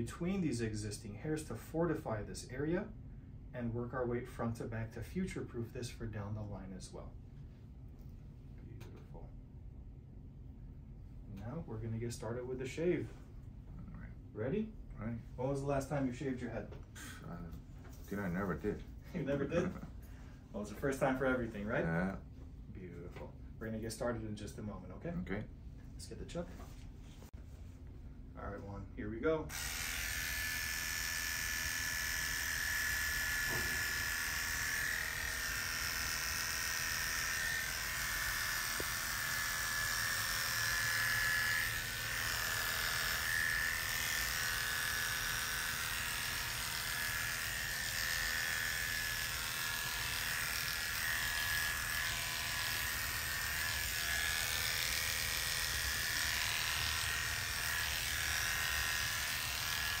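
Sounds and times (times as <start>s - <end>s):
electric hair clippers buzzing: 29.5s - 60.0s.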